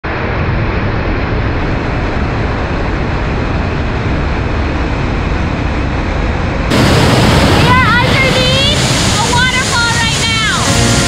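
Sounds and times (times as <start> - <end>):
waterfall rushing: 6.7 - 11.0.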